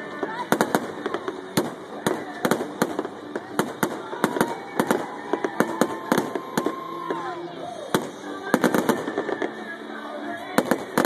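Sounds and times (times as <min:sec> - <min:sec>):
fireworks bangs: 0:00.2 - 0:07.3.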